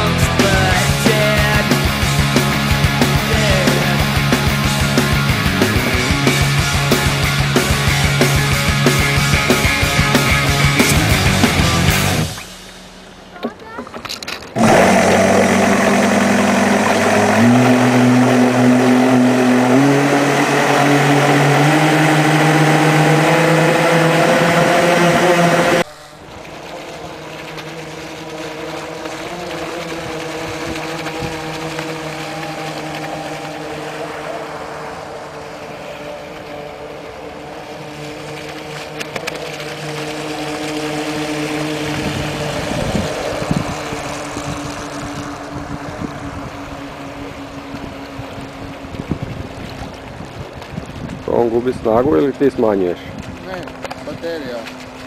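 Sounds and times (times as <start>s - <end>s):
electric motors whining: 13.9s - 51.1s.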